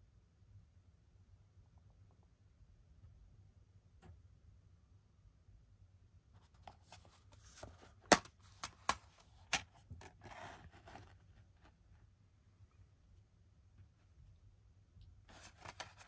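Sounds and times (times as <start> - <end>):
packaging rustle: 15.3 - 16.0.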